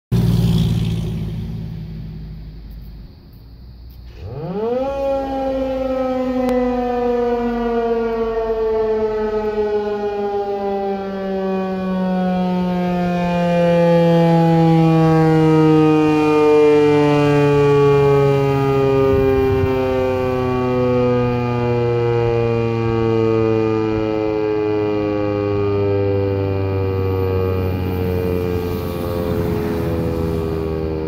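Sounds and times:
warning siren wailing: 4.1 - 31.0.

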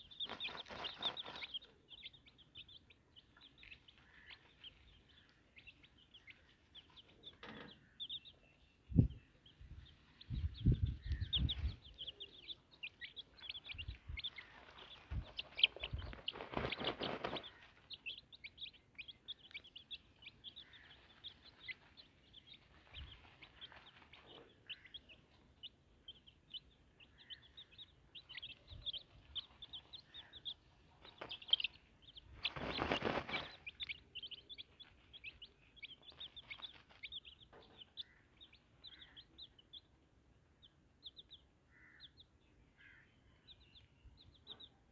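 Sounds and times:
chicks peeping: 0.0 - 44.9
rustling noise: 14.0 - 17.8, 32.3 - 33.8.

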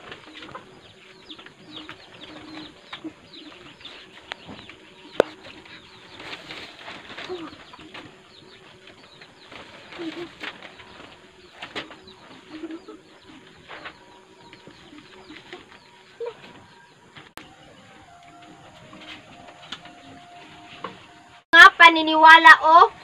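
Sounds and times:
paper sheets rustling: 3.6 - 16.6.

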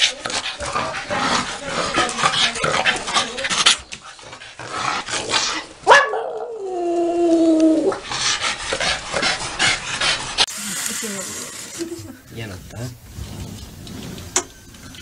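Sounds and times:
small dog barking and yipping: 5.8 - 6.5.

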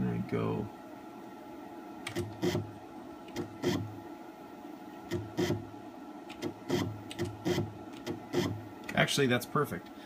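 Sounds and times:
stepper motor buzzes with clicks: 2.0 - 2.7, 3.3 - 3.9, 5.0 - 5.6, 6.3 - 8.6.

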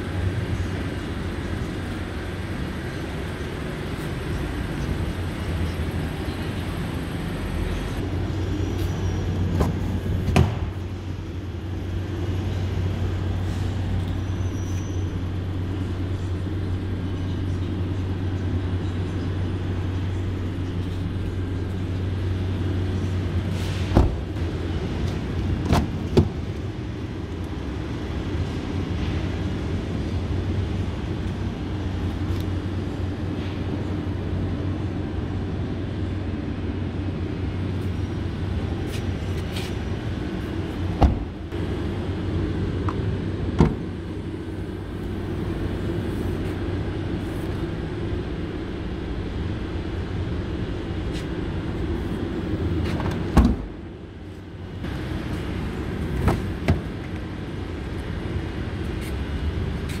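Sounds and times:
car doors thumping shut: 23.9 - 24.2, 41.0 - 41.3, 43.6 - 43.9, 53.0 - 53.7.

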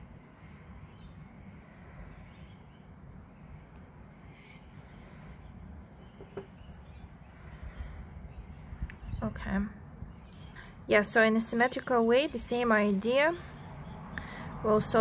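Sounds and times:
low background hum: 0.0 - 15.0.

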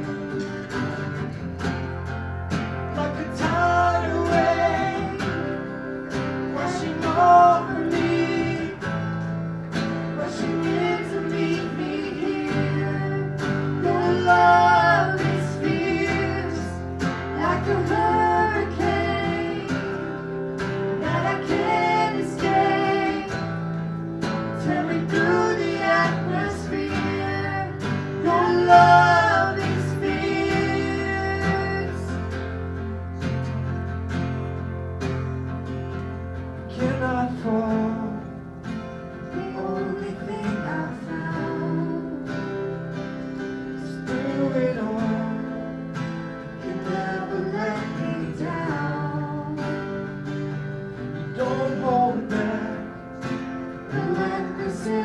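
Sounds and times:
strummed acoustic guitar: 0.0 - 55.0
person singing: 2.9 - 5.9, 6.5 - 9.0, 10.2 - 23.6, 24.6 - 32.3, 39.3 - 42.7, 43.8 - 45.7, 46.6 - 50.0, 51.3 - 53.2, 53.9 - 55.0.

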